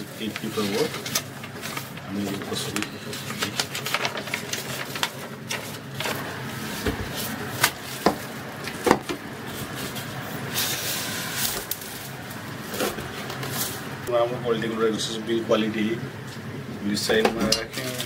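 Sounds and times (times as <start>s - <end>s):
paper rustling: 0.0s - 14.0s.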